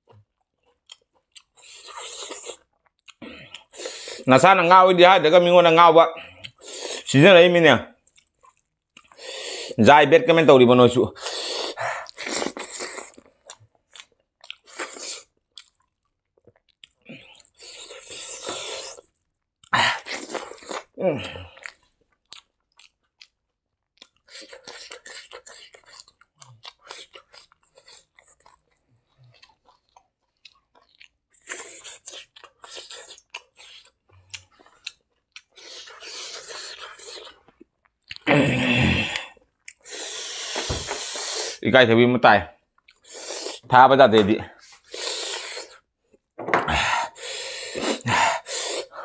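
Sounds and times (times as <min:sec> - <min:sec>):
wet chewing of rice: 0:00.0 - 0:04.3, 0:08.1 - 0:09.8, 0:11.2 - 0:38.3, 0:42.8 - 0:43.7, 0:44.6 - 0:46.2.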